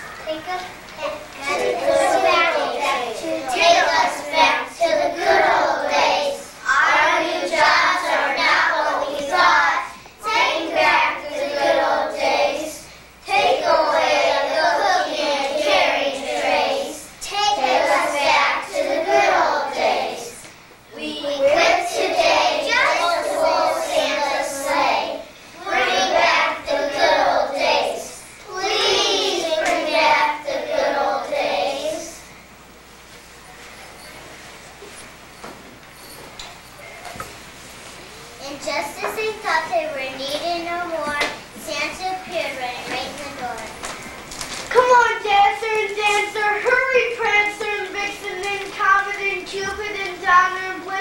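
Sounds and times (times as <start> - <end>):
children singing together: 1.4 - 32.3.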